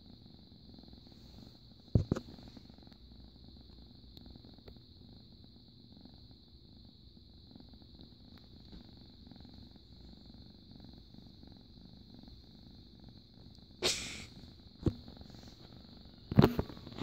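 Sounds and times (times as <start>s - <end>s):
cat purring: 0.0s - 17.0s.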